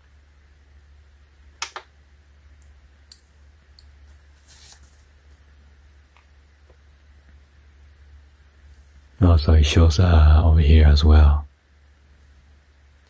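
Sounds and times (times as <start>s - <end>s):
soft rustle: 3.9s - 6.4s, 8.6s - 9.2s.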